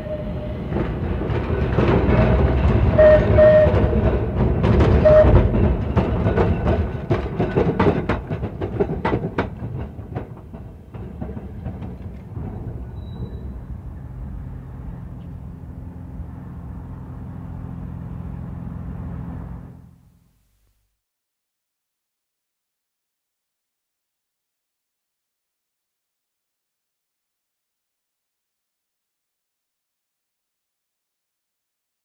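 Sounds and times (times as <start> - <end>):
tram wheels clattering over points: 0.0 - 18.8
tram rumble: 0.0 - 20.3.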